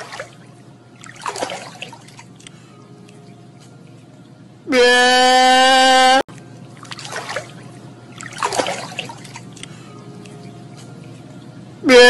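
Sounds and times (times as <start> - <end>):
water splashing in a pool: 0.0 - 3.3, 6.6 - 11.3.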